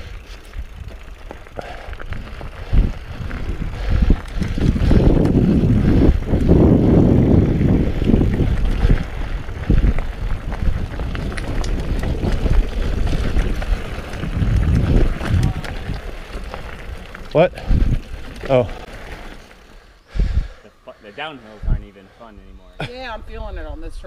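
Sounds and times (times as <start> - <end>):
bike tyre and wind rumble: 0.0 - 24.0
bike knocks and rattles: 4.2 - 19.4.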